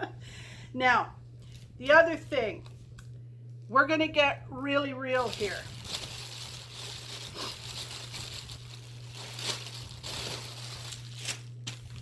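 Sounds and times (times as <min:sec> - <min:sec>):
steady low hum: 0:00.0 - 0:12.0
plastic packaging crinkling: 0:05.1 - 0:12.0.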